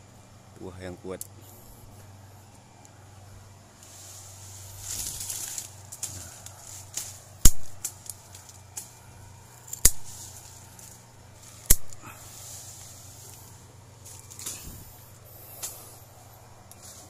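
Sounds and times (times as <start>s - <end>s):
pruning shears snipping branches: 3.8s - 17.0s.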